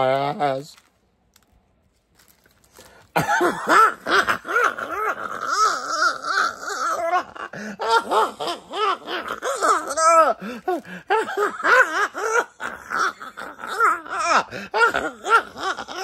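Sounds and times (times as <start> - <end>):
man laughing: 3.2 - 5.2, 10.0 - 16.0.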